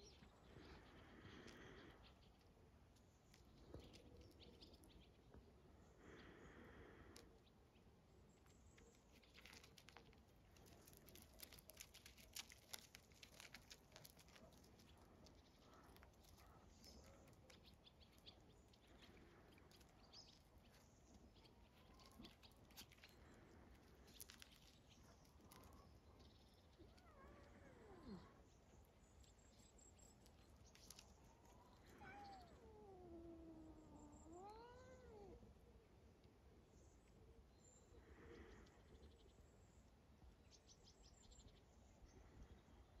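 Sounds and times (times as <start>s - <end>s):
faint bird chirps: 0.0s - 43.0s
small paws scuffling on gravel: 8.4s - 28.2s, 29.0s - 32.6s.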